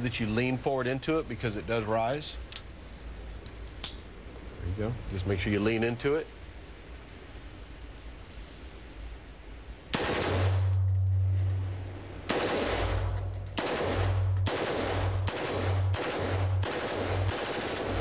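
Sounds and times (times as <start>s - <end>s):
automatic rifle firing in bursts: 10.0s - 10.7s, 12.3s - 18.0s.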